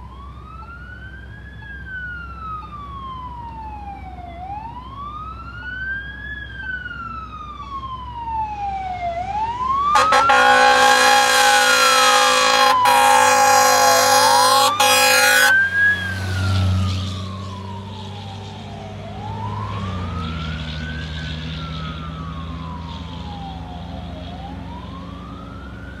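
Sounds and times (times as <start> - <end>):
fire engine siren wailing: 0.0 - 26.0
diesel engine rumbling: 9.8 - 19.6
air horn blasting: 9.9 - 16.6.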